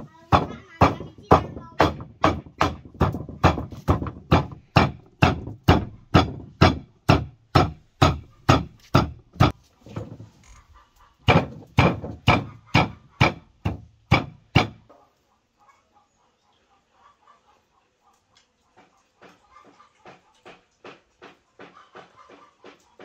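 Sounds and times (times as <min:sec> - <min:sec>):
cleaver chopping meat on wooden board: 0:00.3 - 0:09.6, 0:11.3 - 0:14.8.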